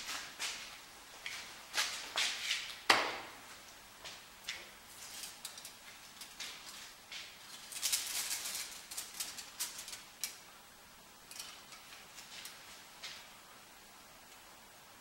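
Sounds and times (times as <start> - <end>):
aluminium foil crinkling: 4.9 - 10.5, 11.2 - 13.3.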